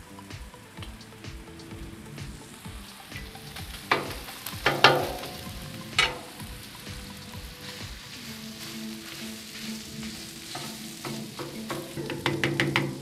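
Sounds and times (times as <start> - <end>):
meat sizzling on griddle: 0.1 - 13.0
metal spatula striking griddle: 3.2 - 6.4, 10.0 - 13.0.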